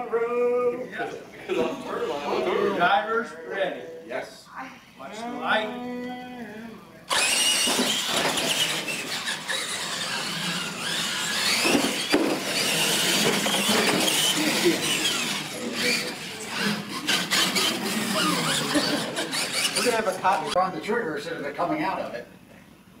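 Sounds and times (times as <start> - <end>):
electric motors and gears whining: 7.1 - 20.6
tyres squealing: 7.1 - 20.6.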